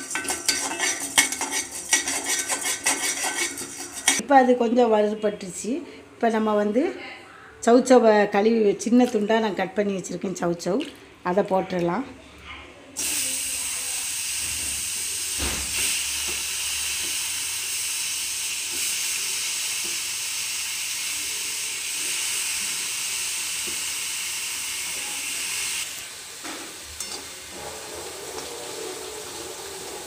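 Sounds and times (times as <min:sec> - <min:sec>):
vegetables sizzling in hot oil: 0:13.0 - 0:30.0.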